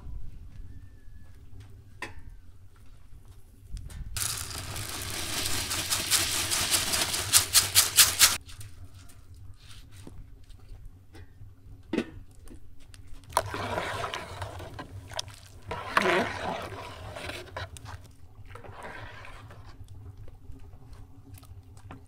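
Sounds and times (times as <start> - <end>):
metal spoon stirring in pot: 4.2 - 8.4, 13.4 - 19.8
rice grains pouring into pot: 4.2 - 8.4.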